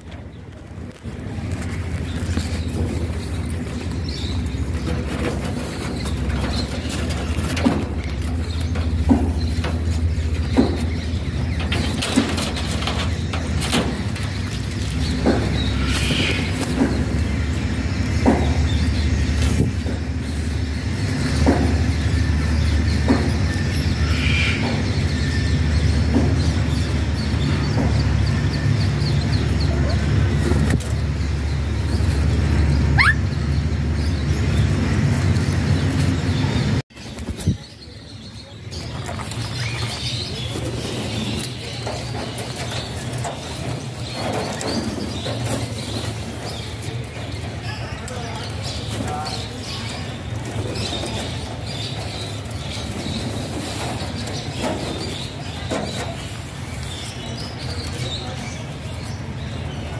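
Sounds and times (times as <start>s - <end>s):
steady low rumble: 0.0s - 37.7s
parakeets chirping: 0.0s - 59.9s.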